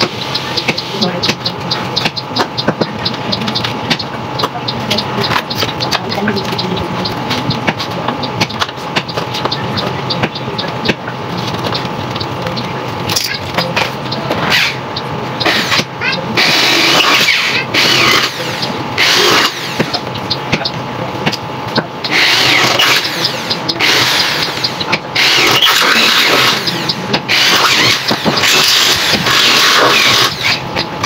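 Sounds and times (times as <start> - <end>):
electric drill boring into metal: 15.4 - 19.9, 22.0 - 30.6.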